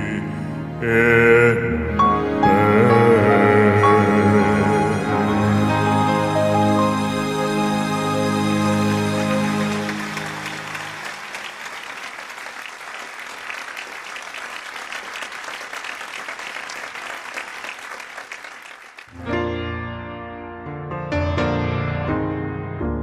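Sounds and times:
piano music: 0.0 - 11.4, 19.1 - 23.0
audience applause: 8.2 - 19.2.

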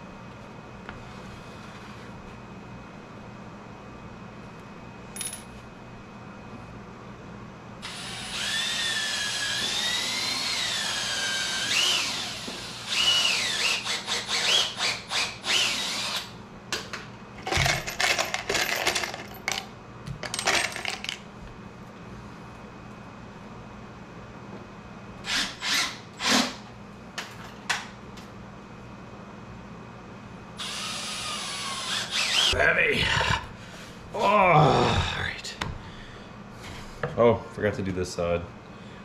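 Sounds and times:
cordless drill driving screws: 7.8 - 16.3, 25.3 - 26.6, 30.6 - 32.5.

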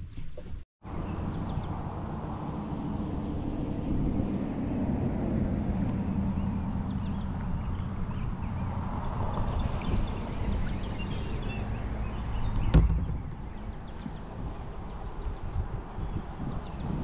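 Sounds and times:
river water rumbling: 0.8 - 17.0
birds chirping and calling: 6.2 - 17.0.

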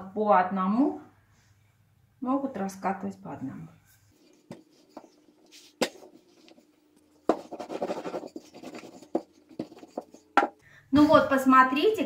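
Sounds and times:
rolling pin rubbing over dough: 4.1 - 10.5.

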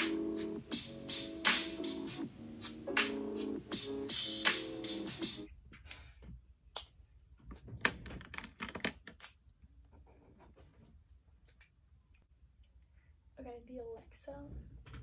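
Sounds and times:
background music: 0.0 - 5.5
markers clicking and tapping on desk: 7.9 - 9.4.

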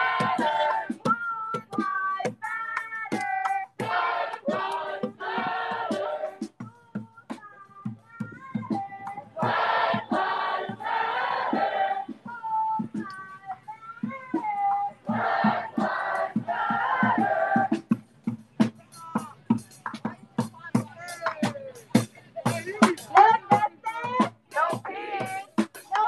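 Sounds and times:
crowd singing and chanting: 0.0 - 26.0.

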